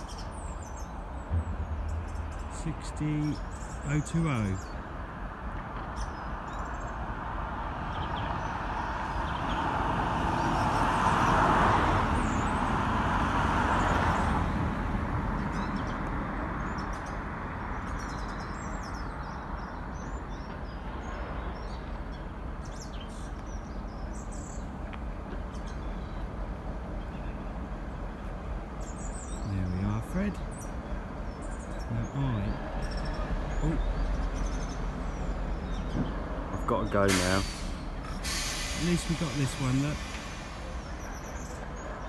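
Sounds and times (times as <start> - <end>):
birds chirping: 0.0 - 7.2, 7.8 - 12.8, 15.3 - 42.0
diesel locomotive engine rumbling: 0.0 - 42.0
rushing noise: 1.0 - 5.0, 37.1 - 41.8.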